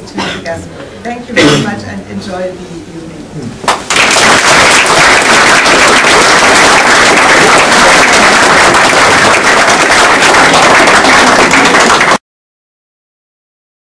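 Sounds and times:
audience applauding: 0:03.6 - 0:12.2.

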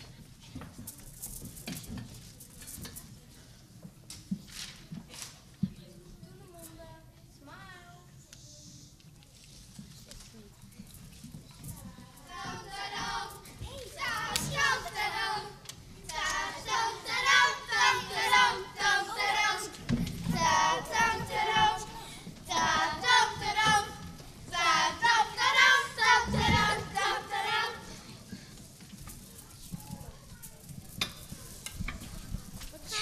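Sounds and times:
children singing: 0:12.3 - 0:27.9.

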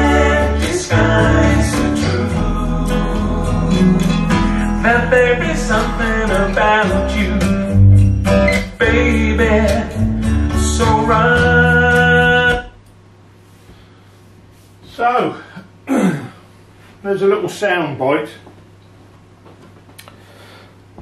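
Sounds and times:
guitar song over loudspeakers: 0:00.0 - 0:12.8.

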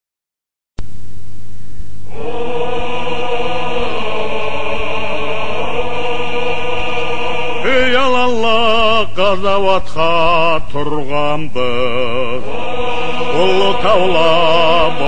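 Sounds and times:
choir holding drone chord: 0:02.1 - 0:10.1, 0:11.6 - 0:15.0
man singing with vibrato: 0:07.6 - 0:15.0.

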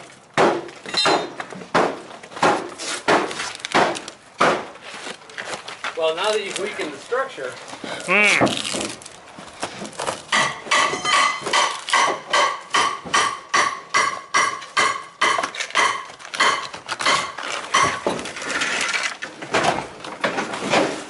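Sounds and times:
hammer striking metal: 0:10.3 - 0:18.1
debris scraping and crumbling: 0:15.5 - 0:21.0.

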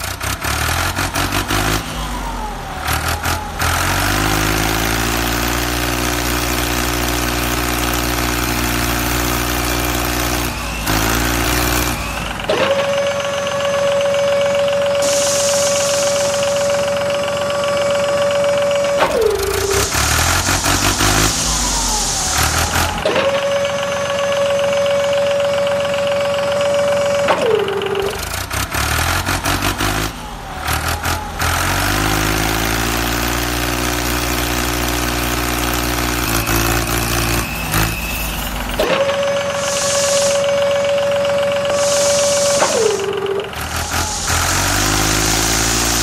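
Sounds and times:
tractor engine idling: 0:00.0 - 0:46.0
tractor engine starting and revving: 0:00.0 - 0:46.0
high whine: 0:13.0 - 0:25.4, 0:37.5 - 0:46.0.

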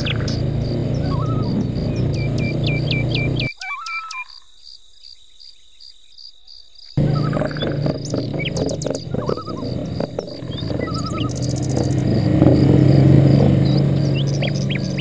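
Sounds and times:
atv engine hum: 0:00.0 - 0:03.5, 0:07.0 - 0:15.0
birds singing: 0:00.0 - 0:15.0
pulsing insect trill: 0:00.0 - 0:15.0.

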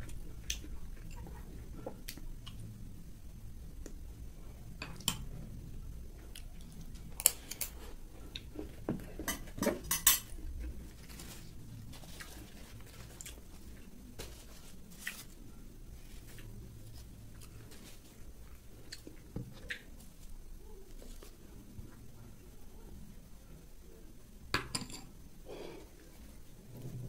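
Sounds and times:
metal spoons clinking on dishes: 0:09.3 - 0:10.4.

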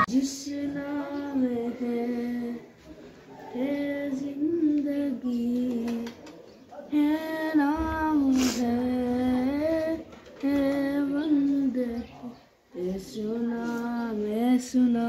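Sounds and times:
high voice singing: 0:00.0 - 0:06.2.

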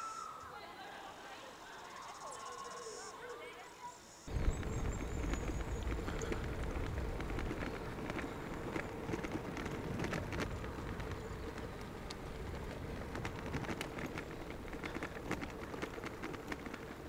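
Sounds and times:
wind on microphone: 0:04.3 - 0:16.8
bicycle ticks and rattles: 0:04.3 - 0:17.0
tyres rumbling on road: 0:04.3 - 0:17.0.

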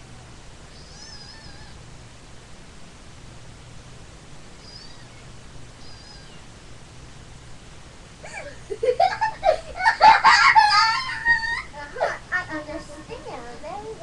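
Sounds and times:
quiet low hiss: 0:00.0 - 0:14.0
loud bending meow-like calls: 0:00.7 - 0:01.8, 0:04.6 - 0:06.4.

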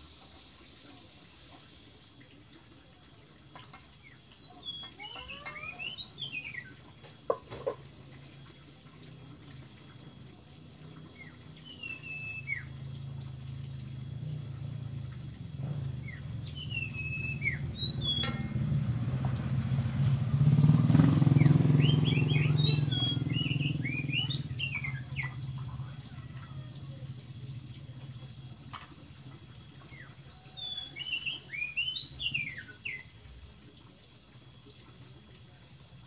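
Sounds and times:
birds chirping: 0:03.6 - 0:07.8, 0:10.9 - 0:13.2, 0:15.6 - 0:18.9, 0:20.6 - 0:26.0, 0:29.6 - 0:33.2
motor vehicle passing by: 0:07.5 - 0:28.6.

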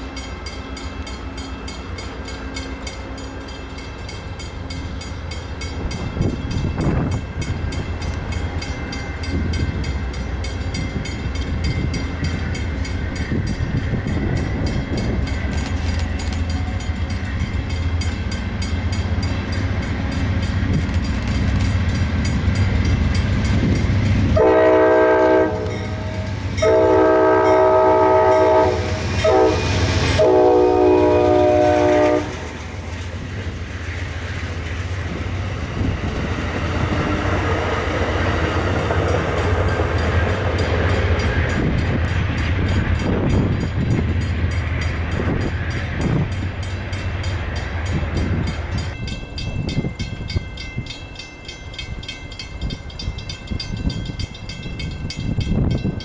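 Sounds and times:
locomotive engine droning: 0:00.0 - 0:56.0
train wheels rumbling and ticking: 0:00.0 - 0:56.0
train horn blasts: 0:24.3 - 0:32.5.

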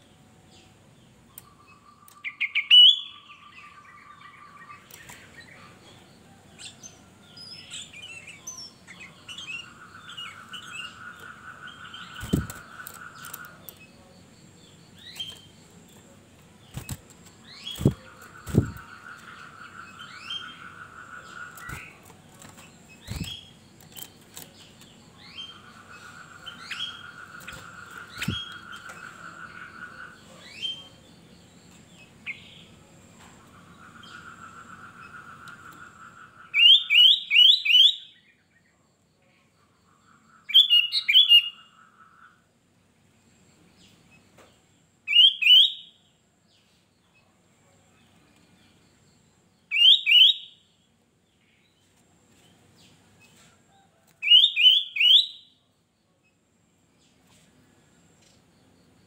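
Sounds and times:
faint chirps: 0:00.0 - 0:59.0
bird singing rising whistled notes: 0:01.4 - 0:05.7, 0:25.2 - 0:31.0, 0:36.6 - 0:38.3, 0:45.1 - 0:46.0, 0:49.7 - 0:50.6, 0:54.2 - 0:55.6.

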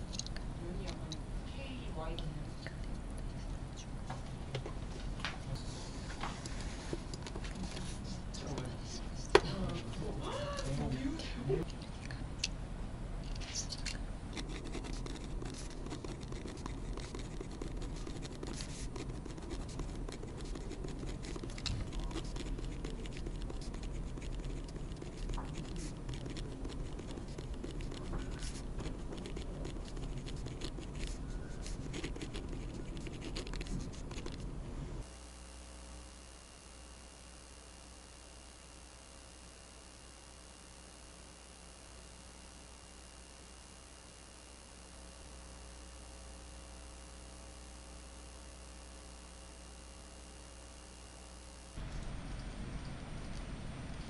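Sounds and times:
faint steady hum: 0:00.0 - 0:54.0
pen scratching on paper: 0:14.3 - 0:34.4.

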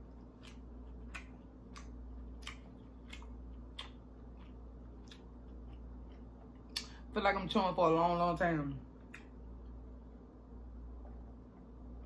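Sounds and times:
crunchy chewing: 0:00.0 - 0:06.8
low steady hum: 0:00.0 - 0:12.0.

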